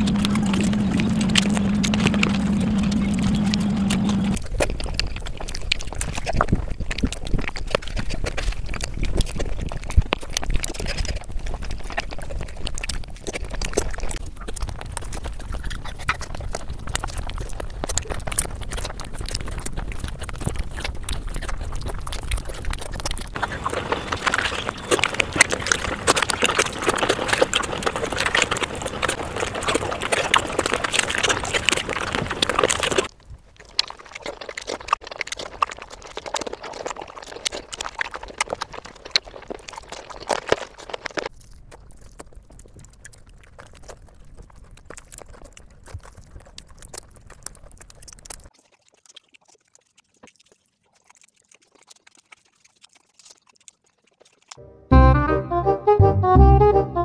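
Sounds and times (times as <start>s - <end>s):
lip-smacking clicks: 0.0s - 33.1s
hands squishing rice: 0.0s - 54.6s
wet chewing: 0.0s - 54.7s.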